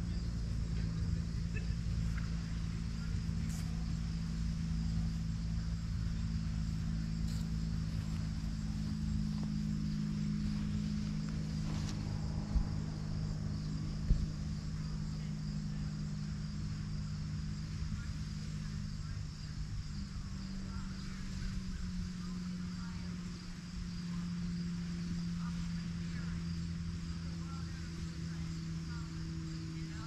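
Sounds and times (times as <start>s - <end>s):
crickets trilling: 0.0s - 30.0s
low steady hum: 0.0s - 30.0s.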